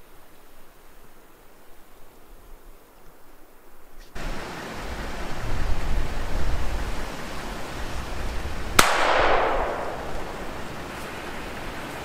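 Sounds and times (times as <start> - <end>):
gunshot with echo: 8.8 - 10.3.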